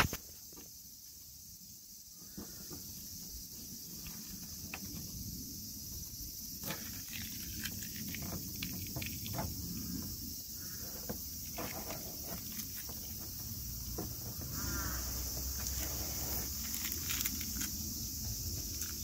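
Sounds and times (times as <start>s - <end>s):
high-pitched insect drone: 0.0s - 19.0s
tape peeling and crumpling: 6.6s - 9.5s, 15.6s - 17.9s.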